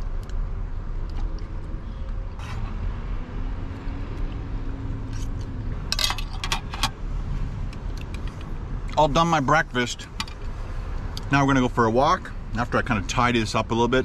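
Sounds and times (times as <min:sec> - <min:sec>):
low traffic rumble: 0:00.0 - 0:14.0
passing car engine hum: 0:01.4 - 0:11.1.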